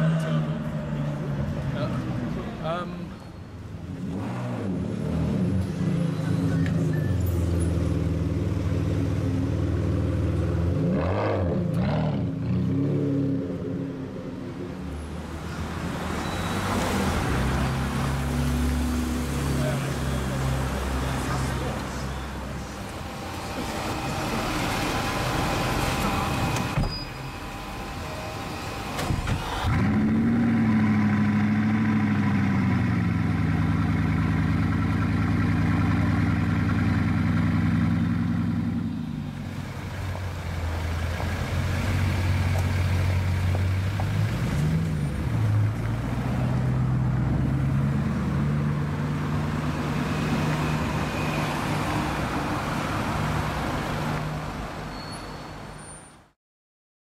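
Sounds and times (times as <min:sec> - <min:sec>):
car engine starting and idling: 0:21.7 - 0:45.8.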